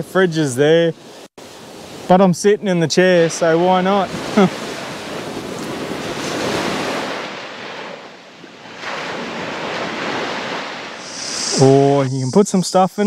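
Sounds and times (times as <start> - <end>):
small waves washing onto sand: 3.0 - 11.6.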